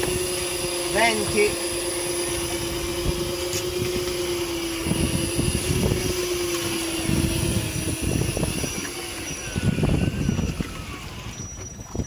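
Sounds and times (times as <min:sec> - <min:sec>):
fishing reel motor whining: 0:00.0 - 0:12.0
wind rumble on microphone: 0:00.0 - 0:12.0.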